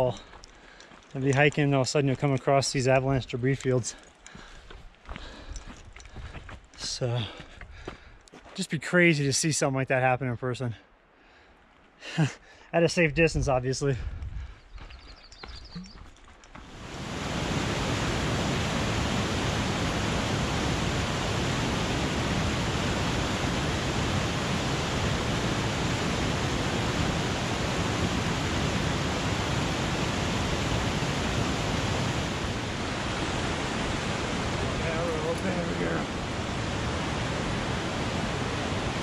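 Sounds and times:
creek rushing over rocks: 16.6 - 39.0.

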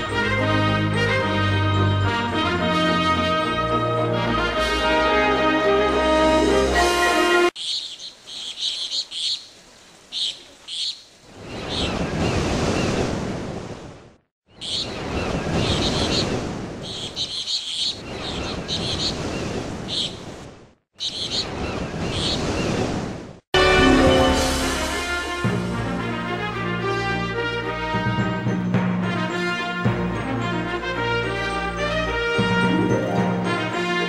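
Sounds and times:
birds chirping: 7.6 - 13.0, 14.5 - 23.0.

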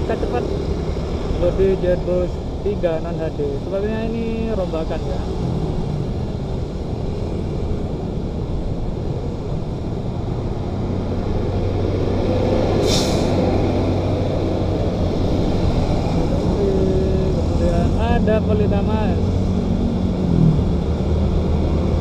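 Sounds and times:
coach engine hum: 0.0 - 22.0
road traffic: 0.0 - 22.0
air hiss: 12.8 - 13.4.

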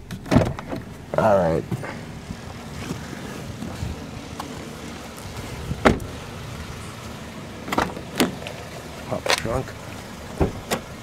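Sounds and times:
car door shutting: 0.0 - 6.2, 7.6 - 8.6, 10.3 - 11.0
steady low rumble: 0.0 - 11.0.

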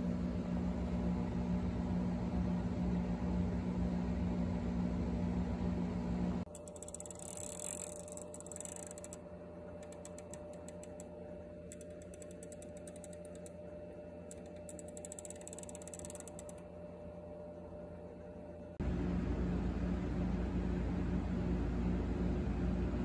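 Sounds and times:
faint steady hum: 0.0 - 23.0
clockwork gears ticking: 6.5 - 9.2, 9.8 - 11.1, 11.7 - 13.6, 14.3 - 16.6.

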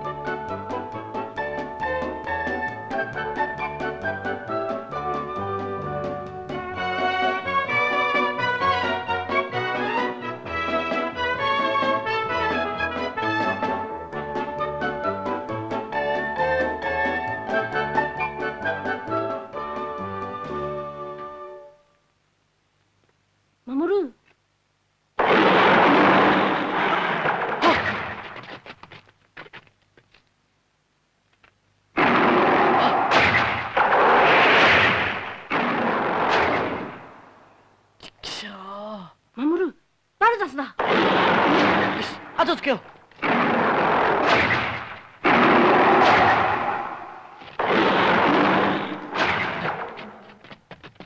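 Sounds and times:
crackles and pops: 25.1 - 37.4, 40.7 - 51.0
loud explosion: 25.2 - 28.4, 32.0 - 37.3, 40.8 - 42.4, 43.2 - 49.8.

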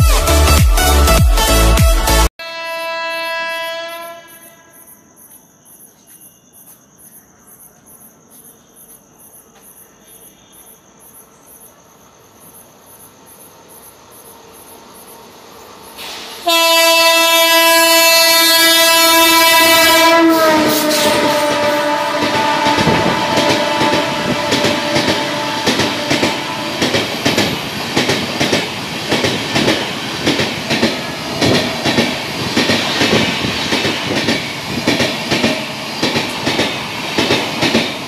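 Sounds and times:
train horn blast: 0.0 - 4.8, 16.4 - 27.5
insects chirping: 2.7 - 16.4, 21.2 - 38.0
train passing at speed: 7.6 - 38.0.

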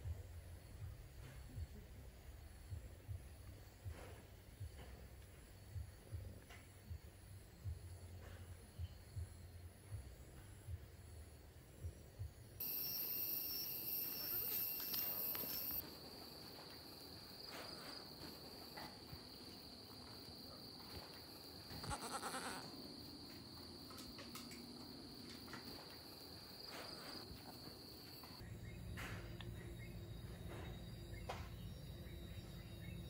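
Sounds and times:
goat kids bleating: 21.7 - 22.7.

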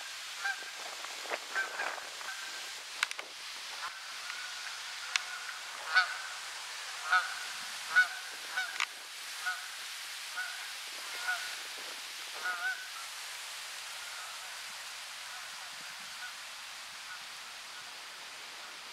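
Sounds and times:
goose honking in flight: 3.8 - 6.4, 7.0 - 8.8, 10.4 - 11.6, 12.4 - 13.0.

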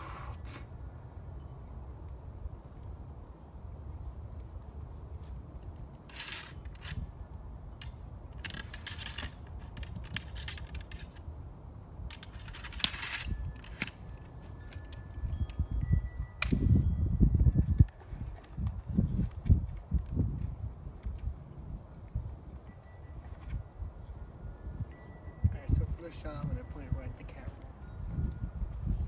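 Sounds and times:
ramrod scraping in rifle barrel: 5.6 - 7.1, 7.8 - 11.2, 12.1 - 14.3.

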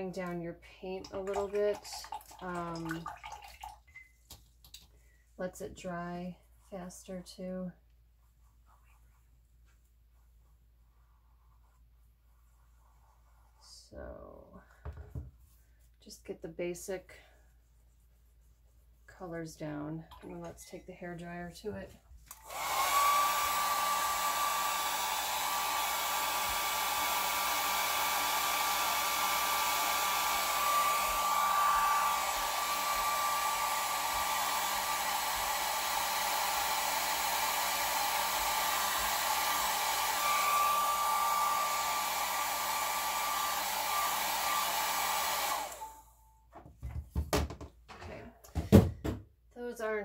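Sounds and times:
hair dryer whining: 22.3 - 46.1.

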